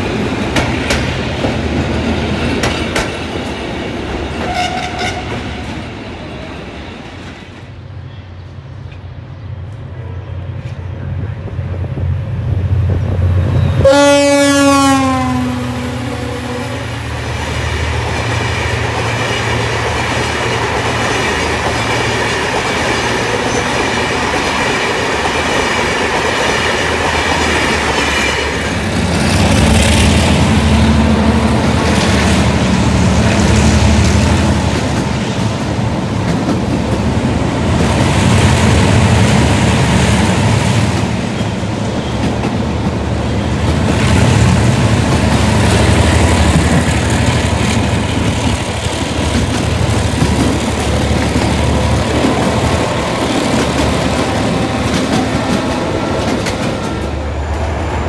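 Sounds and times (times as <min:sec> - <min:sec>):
train wheels clicking over rail joints: 0:00.0 - 0:05.5, 0:17.1 - 0:38.6, 0:39.4 - 0:57.7
train rumbling and clattering: 0:00.0 - 0:58.0
locomotive horn blast: 0:04.4 - 0:05.7, 0:13.6 - 0:17.0.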